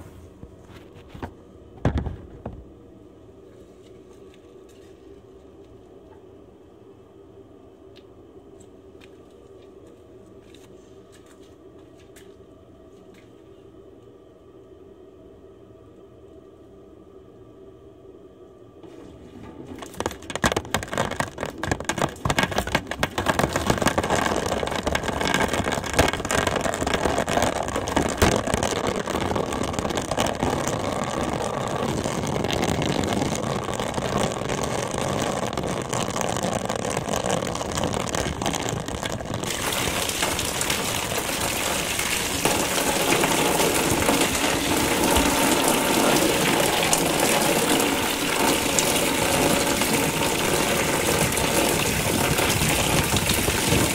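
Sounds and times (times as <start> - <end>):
water splashing into vessel: 19.4 - 53.9.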